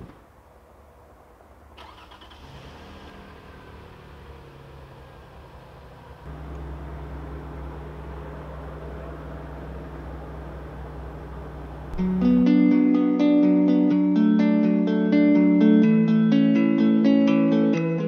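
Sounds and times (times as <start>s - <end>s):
vehicle engine idling: 0.0s - 12.4s.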